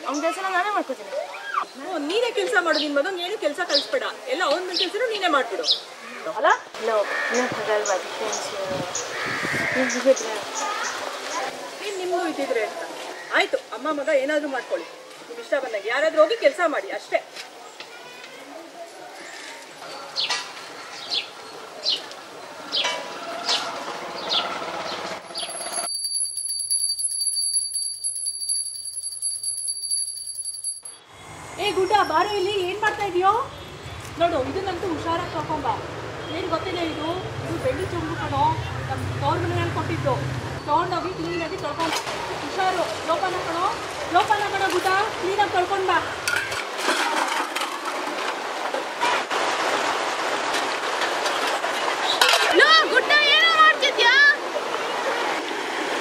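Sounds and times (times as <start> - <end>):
outdoor ambience: 0.0 - 56.0
birds chirping: 7.0 - 12.0, 19.2 - 25.8
hand bell rung rapidly: 25.4 - 31.0
river water splashing: 41.8 - 56.0.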